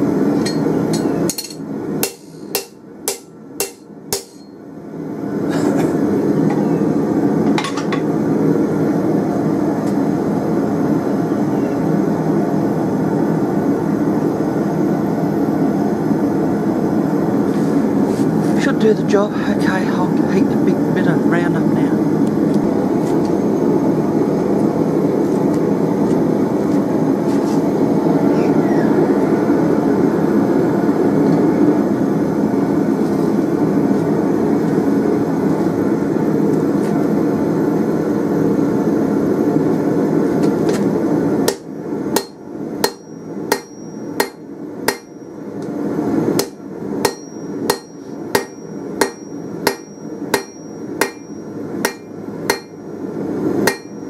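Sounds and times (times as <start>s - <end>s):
anvil ringing: 0.4s - 4.6s, 42.2s - 45.2s, 46.4s - 52.8s, 53.7s - 54.0s
hammer blows on anvil: 0.4s - 4.6s, 42.2s - 45.2s, 46.4s - 52.8s, 53.6s - 54.0s.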